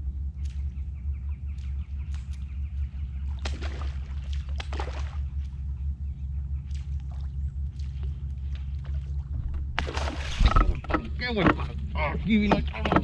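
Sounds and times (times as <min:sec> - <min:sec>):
steady low hum: 0:00.0 - 0:13.0
fish striking with sharp splash: 0:03.4 - 0:05.2, 0:09.8 - 0:10.6.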